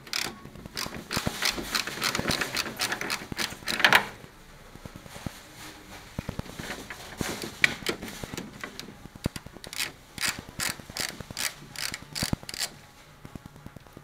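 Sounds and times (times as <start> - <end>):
ratchet wrench clicking: 9.6 - 12.7.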